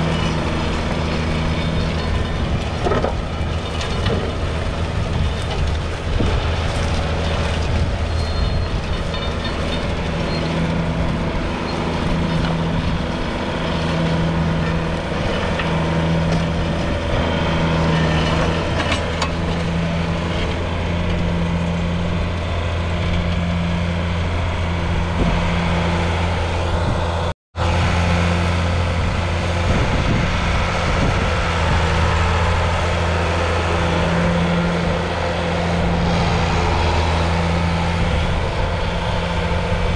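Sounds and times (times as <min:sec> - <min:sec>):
diesel tractor engine under load: 0:00.0 - 0:39.9.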